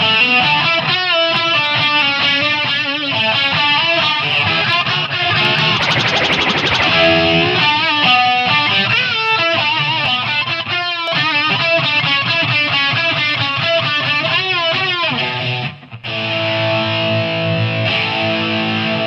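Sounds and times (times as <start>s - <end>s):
guitar with wavering pitch: 5.4s - 7.8s.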